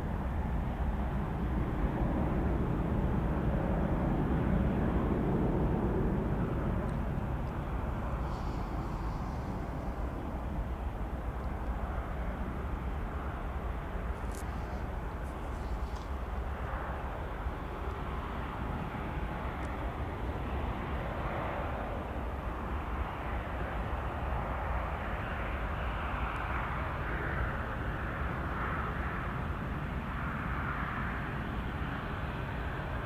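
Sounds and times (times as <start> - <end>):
distant jet engines rumbling: 0.0 - 33.0.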